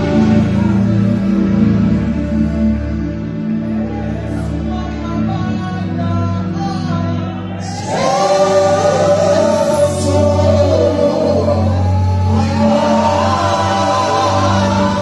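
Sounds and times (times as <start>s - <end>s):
low keyboard notes: 0.0s - 15.0s
group singing gospel: 7.6s - 15.0s.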